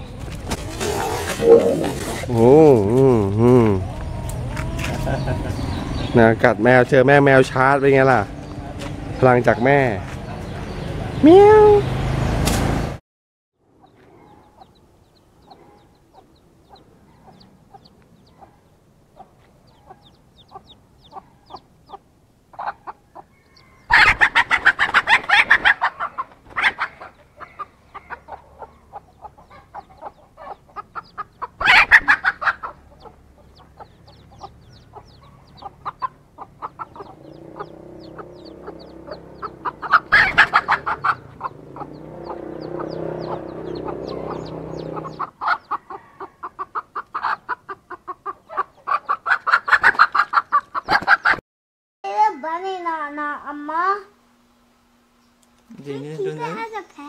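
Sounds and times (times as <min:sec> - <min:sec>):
hen clucking: 0:00.7 - 0:06.5, 0:13.8 - 0:51.4
hen harsh rapid calling: 0:23.8 - 0:27.7, 0:28.9 - 0:45.9.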